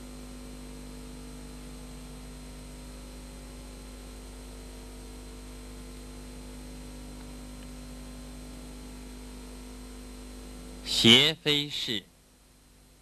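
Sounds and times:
low electrical hum: 0.0s - 13.0s
steady hiss: 10.8s - 12.0s.

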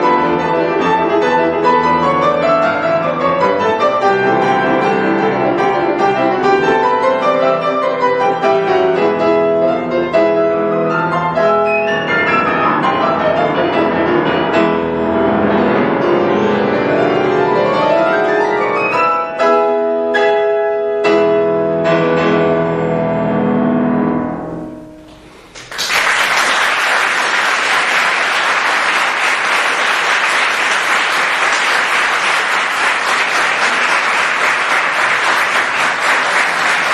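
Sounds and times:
grand piano chords: 0.0s - 25.8s
audience applause: 25.4s - 36.9s.

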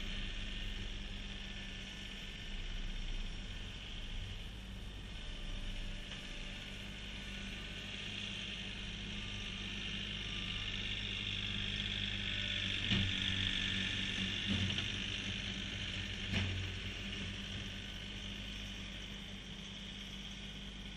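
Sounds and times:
diesel tractor engine running: 0.0s - 20.9s.

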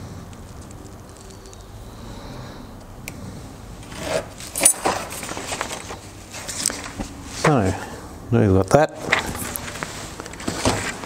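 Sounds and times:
faint handling sounds: 3.8s - 8.0s, 9.0s - 11.0s
paper rustling: 3.9s - 7.8s, 9.0s - 11.0s.

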